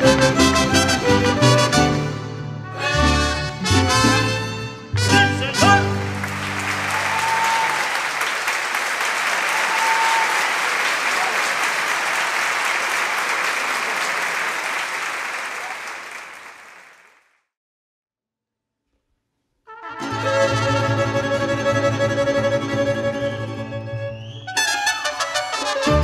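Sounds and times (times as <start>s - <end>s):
audience applauding: 0.0s - 1.6s, 5.4s - 17.3s.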